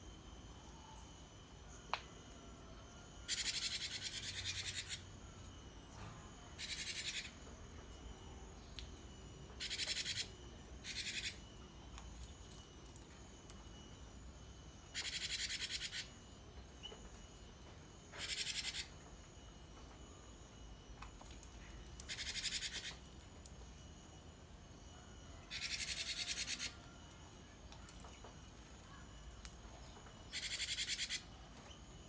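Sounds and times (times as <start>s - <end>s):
bird buzzing rattled calls: 3.3s - 5.1s, 6.6s - 7.4s, 9.6s - 11.5s, 14.9s - 16.2s, 18.2s - 18.9s, 22.0s - 23.0s, 25.5s - 26.8s, 30.3s - 31.3s.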